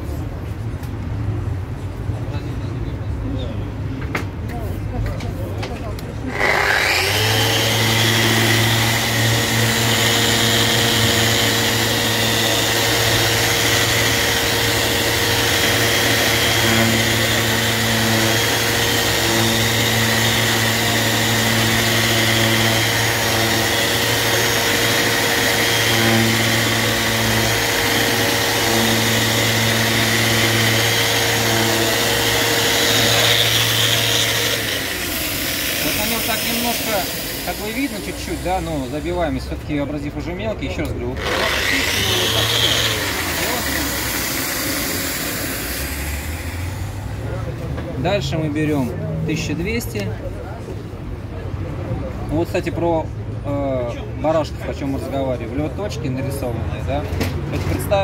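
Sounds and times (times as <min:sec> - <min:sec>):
orbital sander humming: 0:06.3 - 0:39.2, 0:41.2 - 0:47.2.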